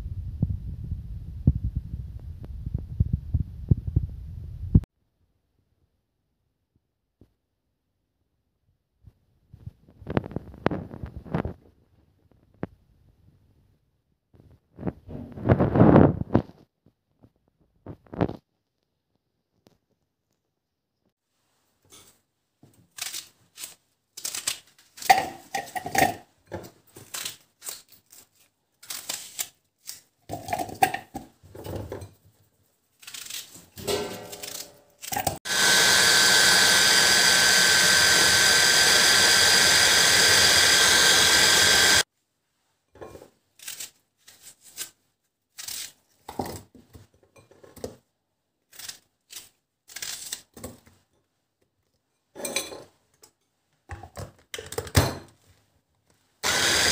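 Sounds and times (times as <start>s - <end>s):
knife cutting onion: 27.0s - 31.0s, 33.0s - 41.9s, 43.6s - 46.1s, 48.7s - 50.6s
electric food chopper whining: 35.3s - 42.1s, 56.4s - 56.9s.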